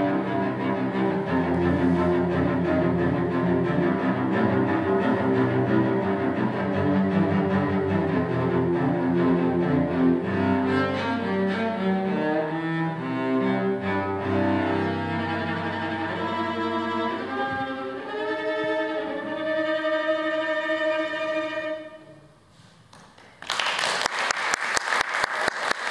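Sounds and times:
solo cello: 0.0 - 22.6
audience applause: 23.0 - 25.9.

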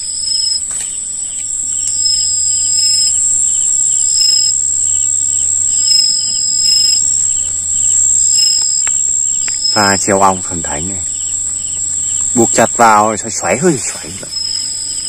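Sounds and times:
cricket trill: 0.0 - 15.0
short high insect calls: 0.0 - 15.0
faint clicks: 7.9 - 9.7.

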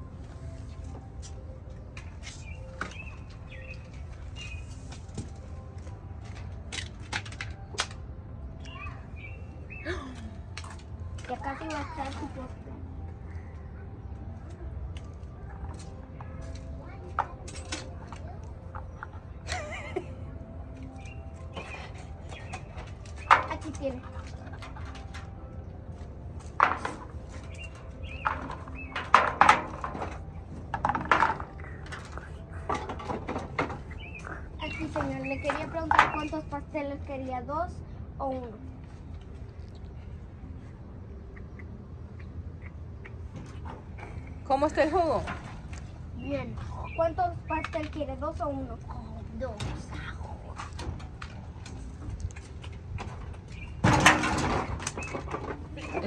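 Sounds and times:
small birds chirping: 2.3 - 5.0, 8.6 - 10.2, 20.8 - 24.6, 27.3 - 29.2, 33.7 - 36.8, 39.4 - 44.5, 45.8 - 50.6, 53.4 - 53.8.

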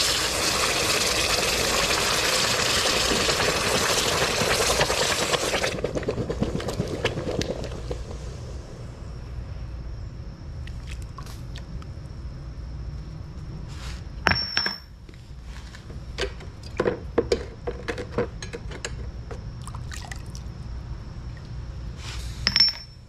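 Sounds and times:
steady low hum: 3.3 - 23.0
water sloshing and splashing: 10.6 - 11.7
metallic clink ringing: 14.3 - 14.9, 22.4 - 23.0.

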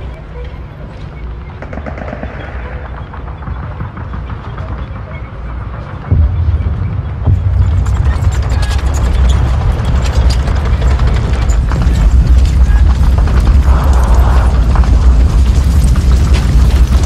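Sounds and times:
tank engine rumble: 0.0 - 17.0
track links clattering: 7.6 - 17.0.

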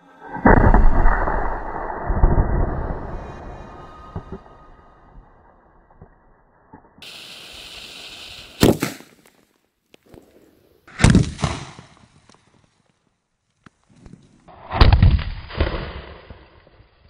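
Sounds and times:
fuse hissing: 7.0 - 8.6
loud firecracker blasts: 7.0 - 9.2
small crackles and pops: 8.6 - 10.4, 11.9 - 14.5.

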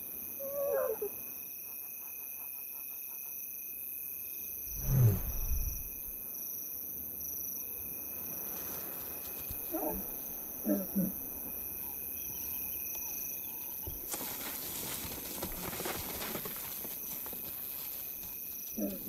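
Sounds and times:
crickets chirping: 0.0 - 14.1.

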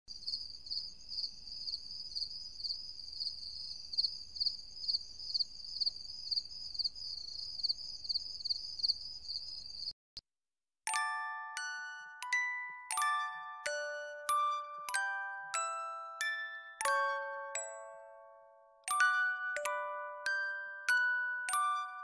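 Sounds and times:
cricket chirring: 0.1 - 9.9.

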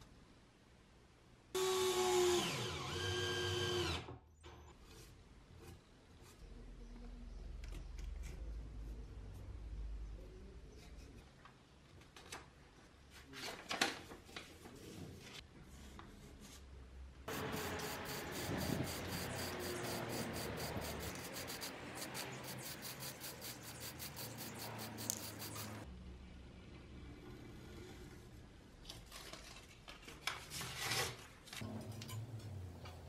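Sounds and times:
aerosol spray can hissing: 17.3 - 25.8
paper rustling: 28.9 - 31.6.

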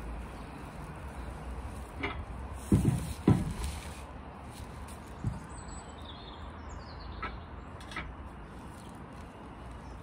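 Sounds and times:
low thump of flue pipe: 2.0 - 3.6.

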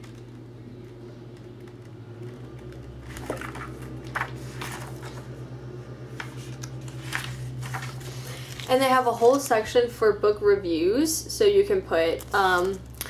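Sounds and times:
steady low hum: 0.0 - 13.0
paper pages rustling: 2.6 - 5.3, 6.1 - 9.6.

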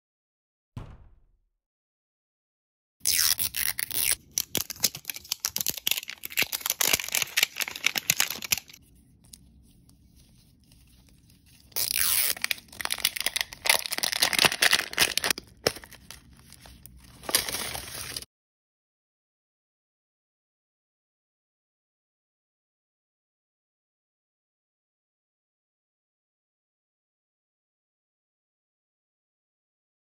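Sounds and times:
plastic film crinkling and tearing: 3.1 - 9.5, 10.6 - 18.3.

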